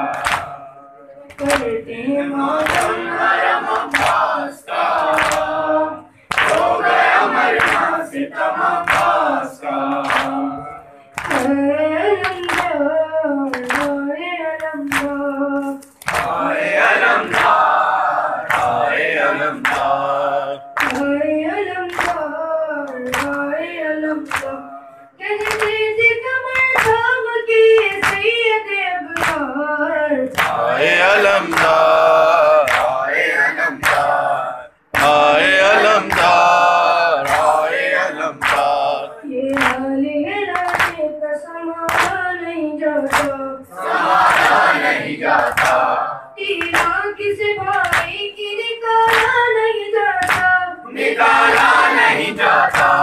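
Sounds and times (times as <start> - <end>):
hands striking chests rhythmically: 0.0 - 11.6, 12.2 - 12.9, 13.5 - 41.2, 41.8 - 42.4, 43.0 - 48.3, 49.0 - 53.0
chorus of voices singing: 0.0 - 12.6, 16.0 - 25.6, 30.0 - 40.8, 43.0 - 46.8, 50.1 - 53.0
boy chanting into a microphone: 0.0 - 53.0.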